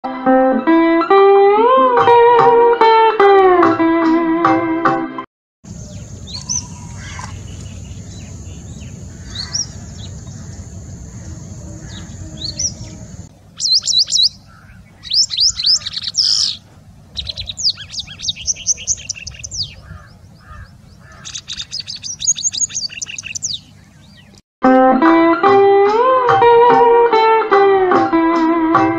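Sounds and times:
thin high bird chirps: 5.7s - 10.6s, 11.8s - 16.6s, 17.2s - 19.8s, 21.0s - 24.4s
bird song of whistles and trills: 5.7s - 16.6s, 17.2s - 24.4s
low hum and hiss: 5.7s - 24.4s.

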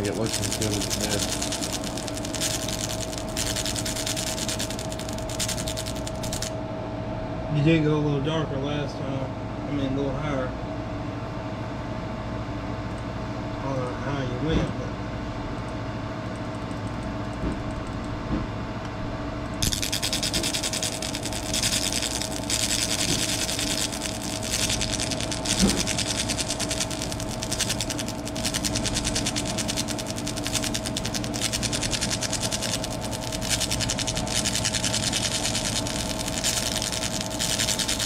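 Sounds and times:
laser engraver crackling hiss: 0.0s - 6.5s, 19.6s - 38.0s
machine hum: 0.0s - 7.2s, 19.1s - 38.0s.

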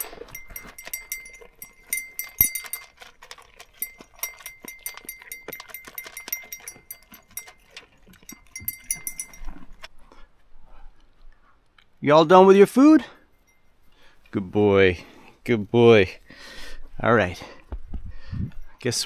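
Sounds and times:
thin ringing note: 0.0s - 3.0s, 8.2s - 9.6s.

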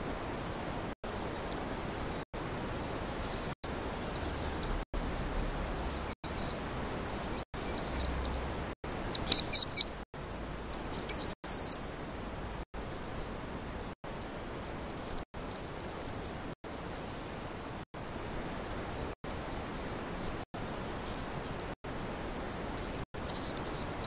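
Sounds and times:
baby hedgehog peeping: 3.0s - 11.9s, 18.0s - 18.6s, 23.2s - 24.0s.

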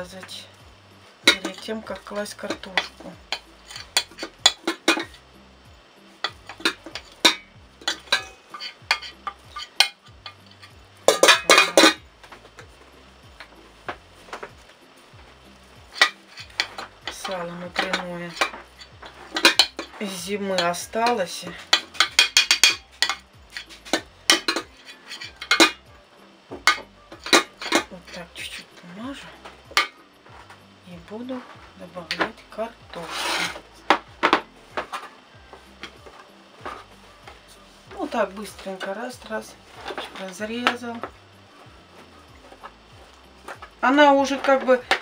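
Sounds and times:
metal spoon clinking on glass dish: 6.2s - 12.0s, 20.6s - 25.8s.

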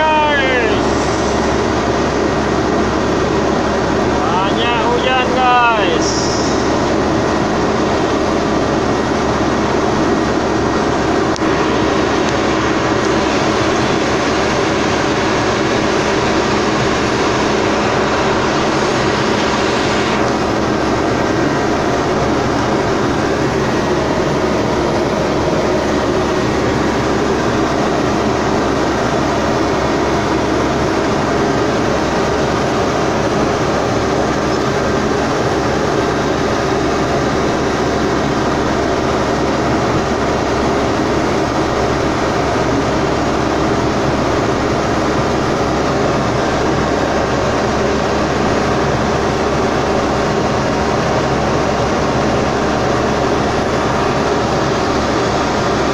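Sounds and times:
diesel engine running: 0.0s - 21.6s.

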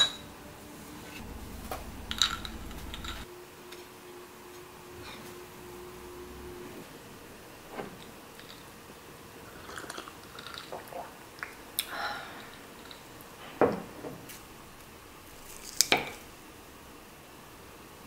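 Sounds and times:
ice clinking in glass: 2.1s - 3.2s.

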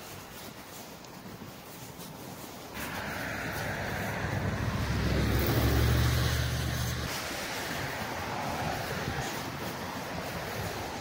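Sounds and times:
vehicle driving past: 2.8s - 9.5s.

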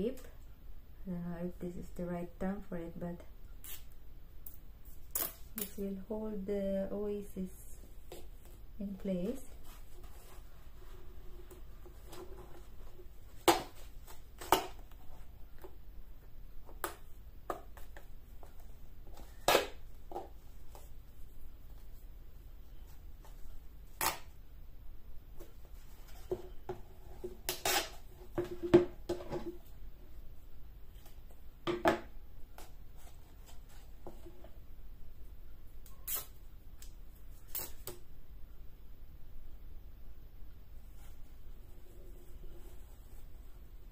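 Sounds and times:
crackles and handling noises: 7.0s - 24.5s, 32.4s - 34.7s
tape ripping off roll: 27.5s - 28.1s.

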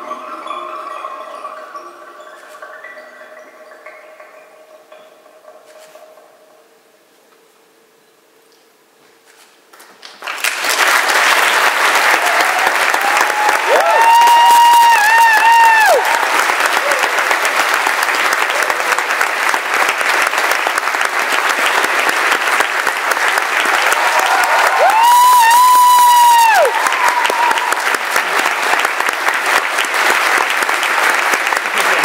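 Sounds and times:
audience applauding: 10.0s - 32.0s
high-pitched cheer: 11.7s - 19.9s, 23.6s - 28.8s.

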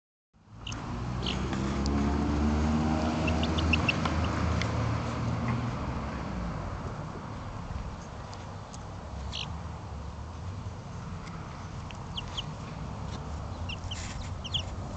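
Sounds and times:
low engine rumble: 0.4s - 14.9s
chicks peeping: 0.6s - 1.7s, 2.9s - 4.5s, 8.7s - 9.5s, 11.7s - 14.9s.

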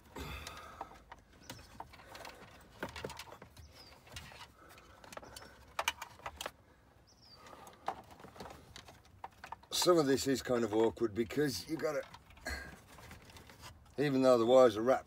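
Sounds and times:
rustling: 7.4s - 15.0s.

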